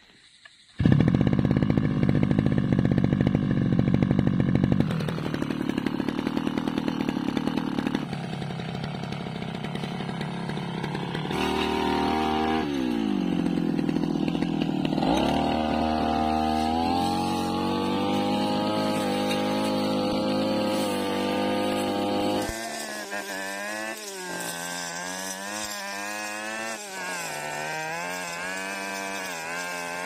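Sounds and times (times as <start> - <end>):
brush cutter engine running: 0.8 - 30.0.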